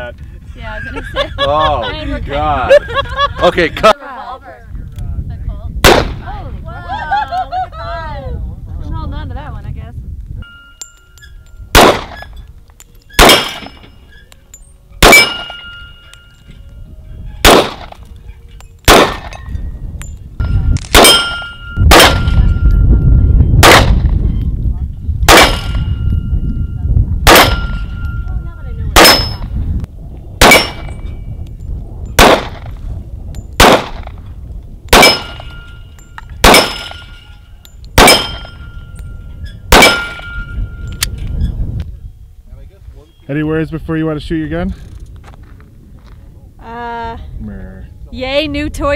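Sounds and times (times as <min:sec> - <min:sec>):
handgun shots: 0:05.8 - 0:06.2, 0:11.8 - 0:12.3, 0:13.2 - 0:13.7, 0:15.0 - 0:15.6, 0:17.4 - 0:18.0, 0:18.9 - 0:19.4, 0:20.8 - 0:22.4, 0:23.6 - 0:24.0, 0:25.3 - 0:25.8, 0:27.3 - 0:27.7, 0:29.0 - 0:29.4, 0:30.4 - 0:30.9, 0:32.2 - 0:32.6, 0:33.6 - 0:34.1, 0:34.9 - 0:35.5, 0:36.4 - 0:37.0, 0:38.0 - 0:38.5, 0:39.7 - 0:40.3
steel target ringing: 0:10.4 - 0:12.5, 0:13.1 - 0:16.7, 0:18.8 - 0:24.0, 0:25.3 - 0:29.6, 0:30.4 - 0:31.4, 0:34.9 - 0:41.2.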